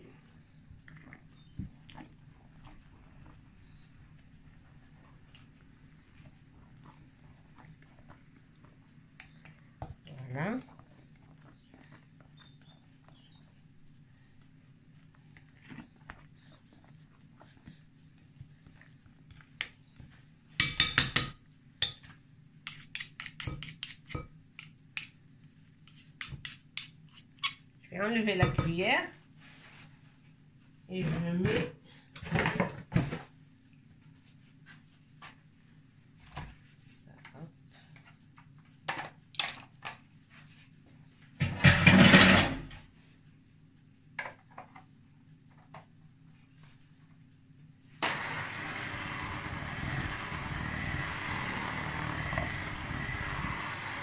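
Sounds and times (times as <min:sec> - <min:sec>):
electric hand mixer running: 0:48.0 - 0:54.0.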